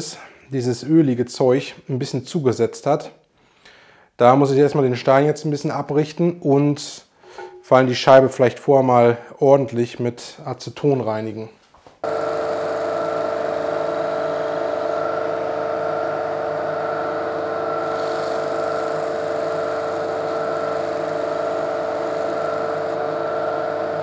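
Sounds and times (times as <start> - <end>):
disc sander motor humming: 12.0 - 24.0.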